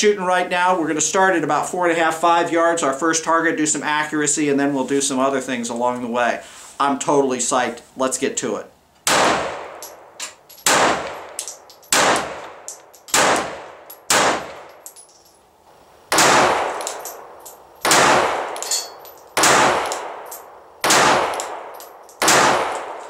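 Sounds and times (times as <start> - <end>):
pistol shots with ringing echo: 9.1 - 14.7, 16.1 - 23.0
light metallic clinks: 9.7 - 15.5, 16.6 - 20.6, 21.3 - 22.3.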